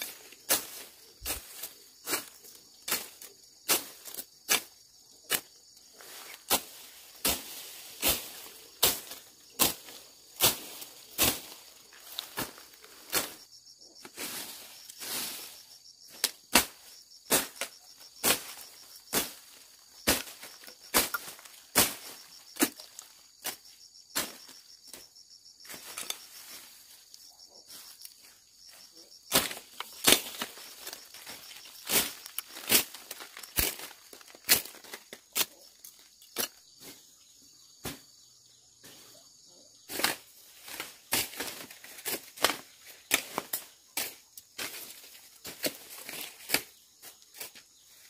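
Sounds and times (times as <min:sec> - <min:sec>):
machete slashing through weeds: 0:06.4 - 0:11.6, 0:29.3 - 0:34.8.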